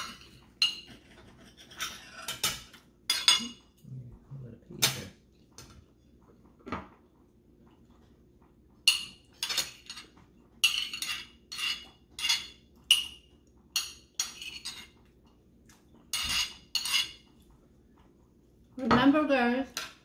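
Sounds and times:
forks clinking and scraping plates: 0.0 - 3.7, 8.9 - 15.0, 16.1 - 17.4.

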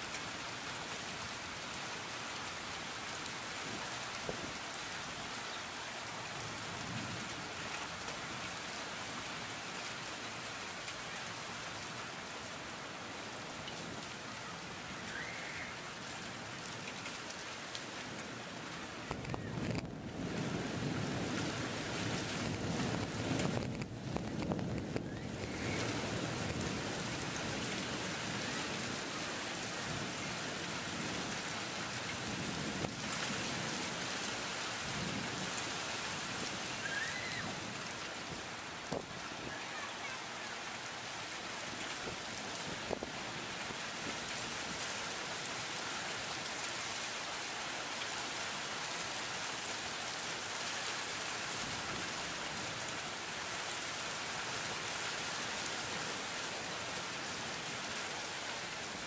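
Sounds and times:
heavy rain falling: 0.0 - 59.0
low rumble of thunder: 19.3 - 29.0.

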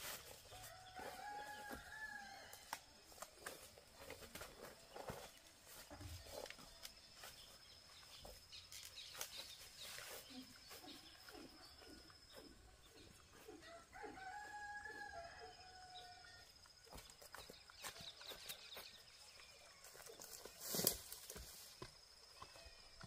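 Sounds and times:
rooster crowing: 0.6 - 2.7, 13.6 - 16.5.

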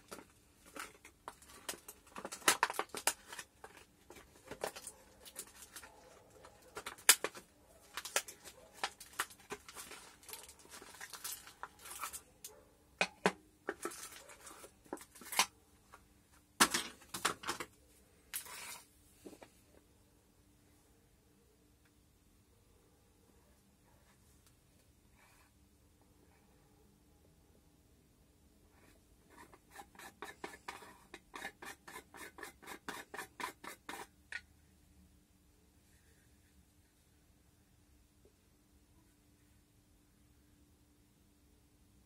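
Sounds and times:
plastic packaging crackling: 0.0 - 12.3, 13.7 - 15.5.

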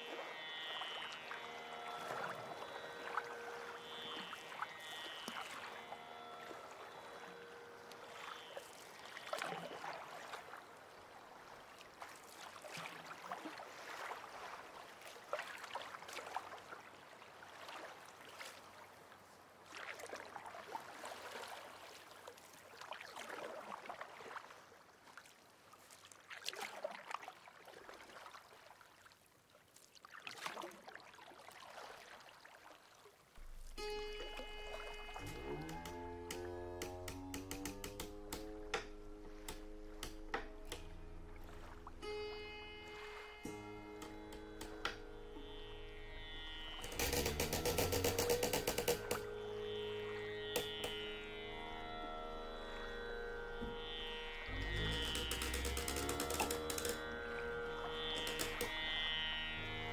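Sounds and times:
water splashing and gurgling: 0.1 - 18.9, 29.8 - 45.7.

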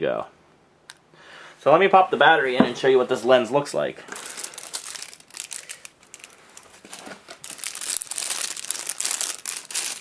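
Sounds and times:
plastic bag crinkling: 4.1 - 10.0.

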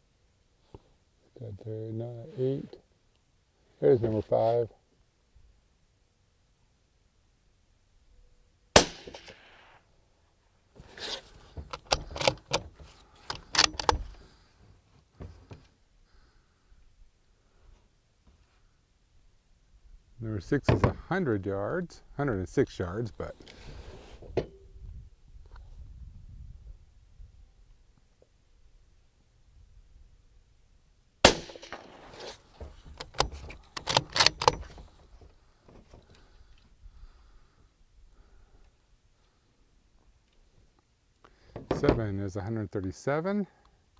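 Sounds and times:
suppressed rifle shot: 8.7 - 9.9, 31.2 - 32.3
rifle bolt metallic clicks: 11.7 - 12.7, 13.3 - 14.2, 33.0 - 34.8.

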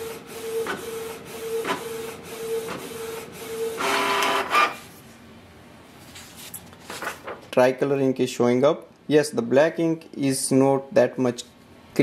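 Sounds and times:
printer carriage motor whirring: 0.0 - 4.8
printer feeding out paper: 0.0 - 4.8.

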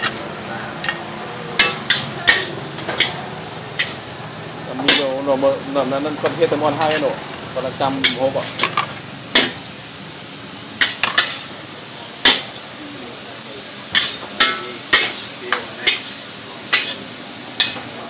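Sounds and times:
noodles sizzling in a wok: 0.0 - 18.0
metal spatula scraping pan: 16.8 - 17.9.

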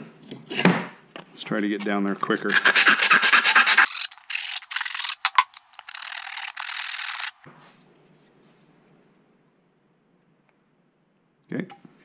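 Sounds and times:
hand sanding fiberglass edge: 2.5 - 5.2.

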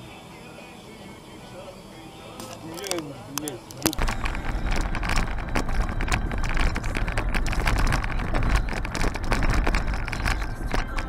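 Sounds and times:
car road and engine rumble: 0.0 - 11.0
small knocks and rattles: 3.7 - 11.0.

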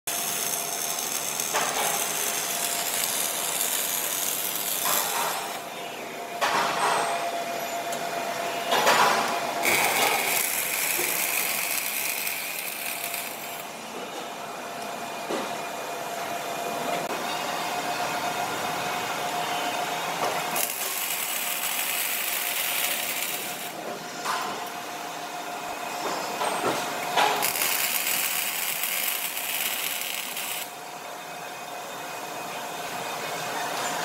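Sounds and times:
welding arc crackling sizzle: 0.1 - 5.7, 9.6 - 13.8, 20.2 - 23.8, 27.0 - 30.8.

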